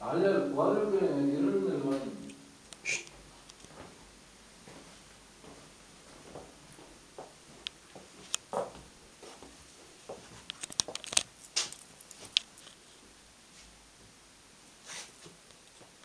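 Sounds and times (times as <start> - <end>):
soft handling clicks and rustles: 3.4 - 4.0, 4.7 - 13.8.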